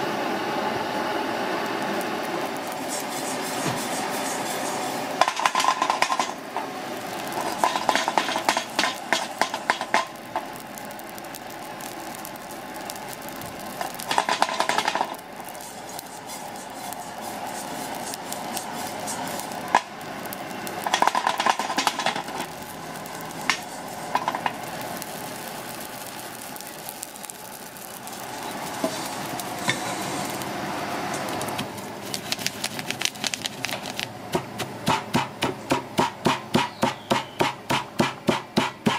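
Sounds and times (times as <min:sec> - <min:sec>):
steady hiss: 0:00.0 - 0:38.9
utensil scraping granules in metal pan: 0:02.4 - 0:10.6, 0:11.4 - 0:30.6, 0:31.2 - 0:34.1.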